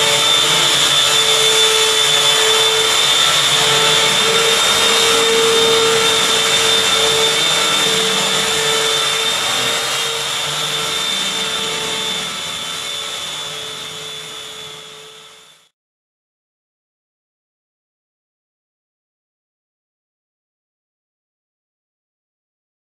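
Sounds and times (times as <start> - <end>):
mechanical whir with whine: 0.0 - 15.7.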